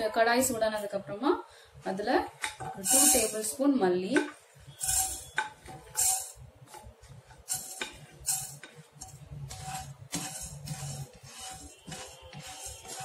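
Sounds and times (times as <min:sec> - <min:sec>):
seeds rattling in a pan: 0:04.8 - 0:06.4.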